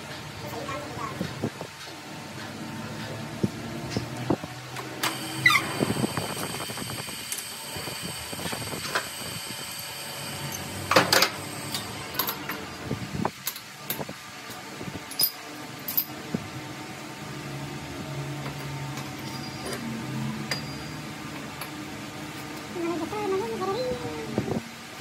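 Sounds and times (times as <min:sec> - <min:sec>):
mechanical hum: 0:00.0 - 0:25.0
tools clanking against metal: 0:13.4 - 0:16.1.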